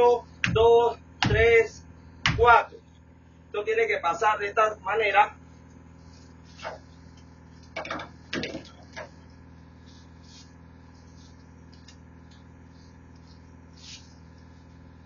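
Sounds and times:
low machinery hum: 0.0 - 15.0.

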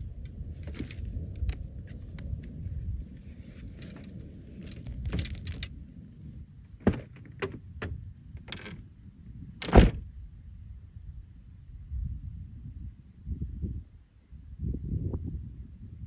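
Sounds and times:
handling clicks and knocks: 3.7 - 5.8
loud thump: 6.8 - 8.0, 9.6 - 10.1.

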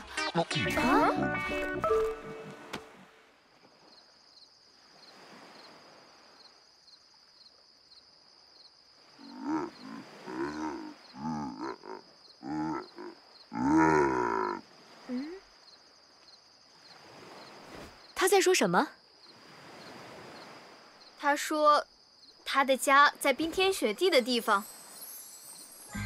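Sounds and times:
high insect chirping: 3.1 - 26.0
cartoon bear growling calls: 9.2 - 14.6.

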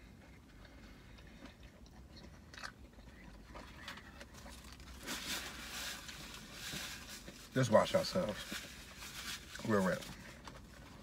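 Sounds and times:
chewing and biting food: 0.0 - 7.5
rustling: 3.8 - 11.0.

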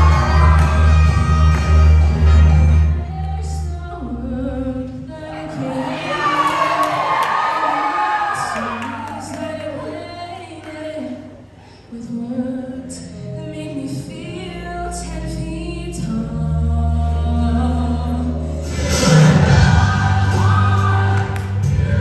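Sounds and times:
low bass line: 0.0 - 4.9
choir singing sustained chords: 18.4 - 22.0.

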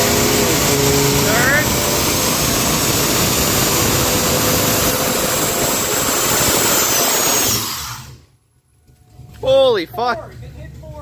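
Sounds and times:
engine revving high: 0.0 - 8.2.

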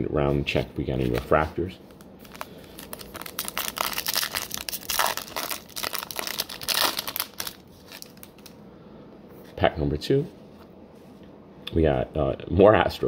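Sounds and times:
foil wrapper crinkling: 2.0 - 8.6.

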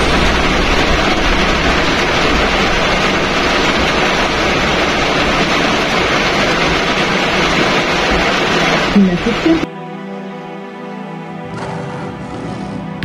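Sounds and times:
heavy rain on car roof: 0.0 - 9.7.

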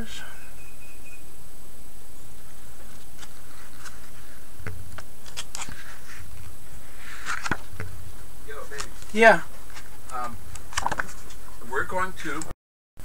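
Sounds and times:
catalog pages turning: 2.8 - 6.5, 7.1 - 7.9, 8.6 - 11.7.

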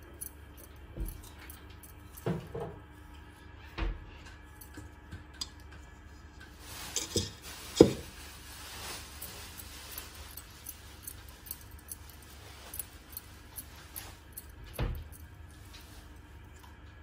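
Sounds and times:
hands working dough: 4.3 - 17.0.

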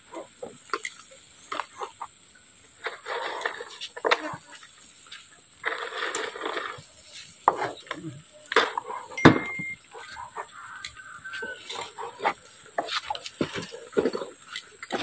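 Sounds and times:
farm animals: 0.0 - 15.0
voices: 6.4 - 15.0.

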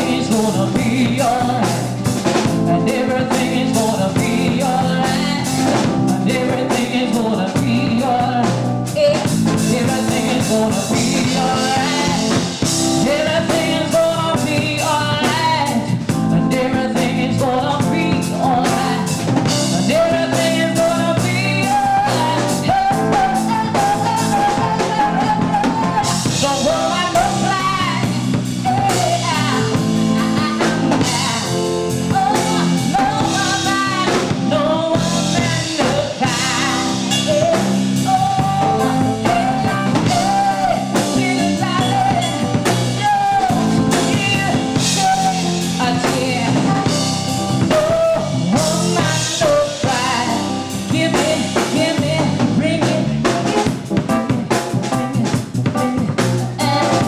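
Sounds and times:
woman singing live: 0.0 - 53.9, 56.5 - 57.0
keyboard and drums band: 0.0 - 57.0.

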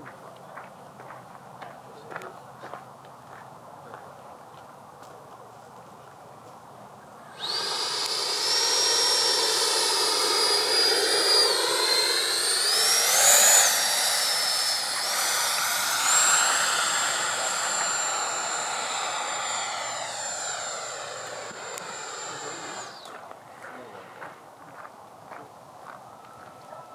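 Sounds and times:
electric ducted fan whining: 7.2 - 23.4.

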